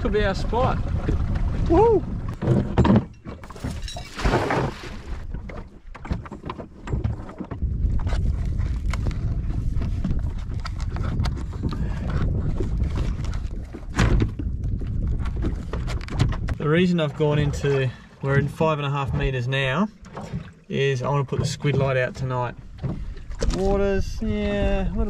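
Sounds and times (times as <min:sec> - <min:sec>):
wind buffeting microphone: 0:00.0 - 0:04.0, 0:04.7 - 0:19.4, 0:22.4 - 0:25.0
water lapping: 0:00.0 - 0:25.0.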